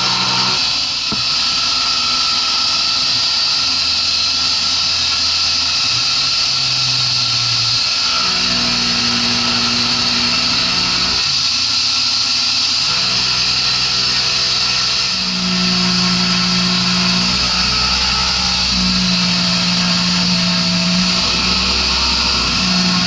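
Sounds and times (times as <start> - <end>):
low motor tones: 0.0 - 2.4, 12.8 - 23.0
milling machine cutting metal: 0.0 - 23.0.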